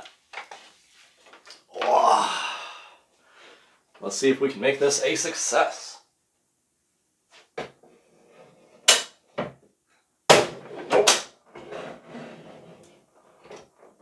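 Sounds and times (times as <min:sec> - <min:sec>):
shuffling and scraping: 0:00.1 - 0:01.5.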